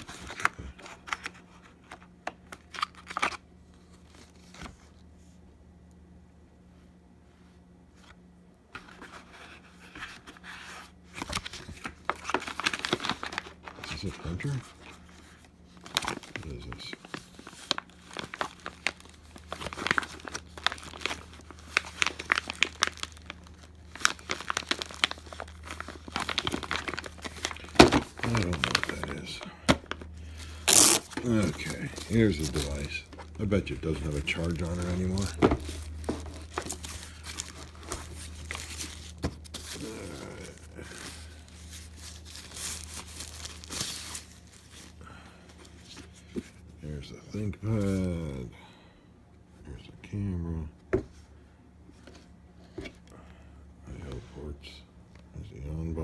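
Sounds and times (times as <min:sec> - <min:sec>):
faint low hum: 0:00.0 - 0:56.0
plastic bag crinkling: 0:15.7 - 0:45.1.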